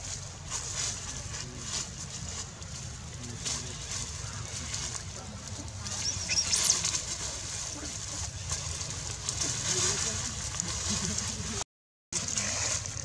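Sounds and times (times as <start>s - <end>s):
dry leaves rustling: 0.0s - 11.6s, 12.2s - 13.0s
high-pitched squeaks: 5.8s - 7.1s.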